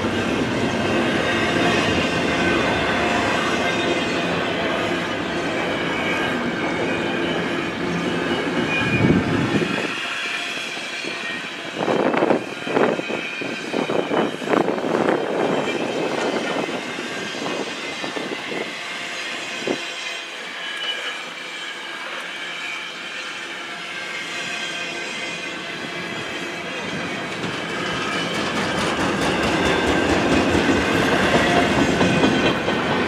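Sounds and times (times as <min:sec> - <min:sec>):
high wheel squeal: 0:00.0 - 0:33.0
train wheels rattling: 0:24.9 - 0:33.0.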